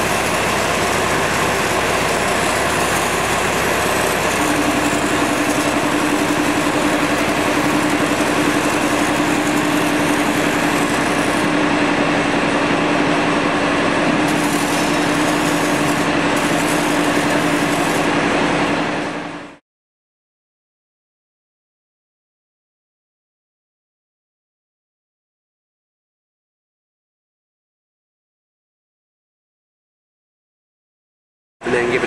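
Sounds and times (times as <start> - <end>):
small motor humming: 0.0 - 19.1
spray wand hissing: 14.3 - 18.2.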